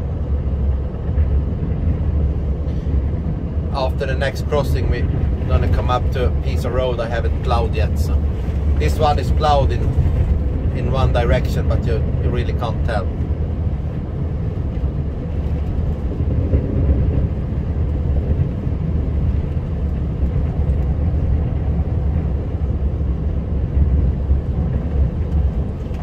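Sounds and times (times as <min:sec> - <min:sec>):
truck engine rumble: 0:00.0 - 0:26.0
wind against truck: 0:00.0 - 0:26.0.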